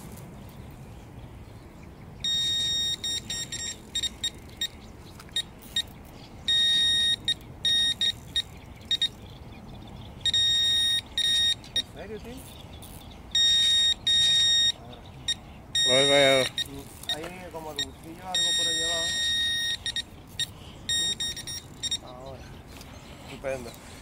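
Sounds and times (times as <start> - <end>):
bite alarm bleeping: 2.2 - 5.9, 6.5 - 9.2, 10.2 - 12.0, 13.3 - 22.2.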